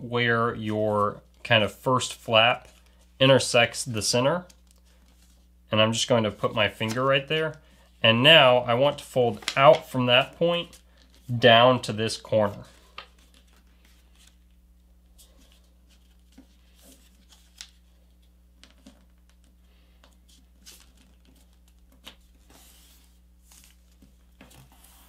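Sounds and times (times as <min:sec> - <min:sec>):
paper rustling and crinkling: 0:06.3 - 0:07.6, 0:08.8 - 0:11.4, 0:12.6 - 0:14.6, 0:15.2 - 0:25.0.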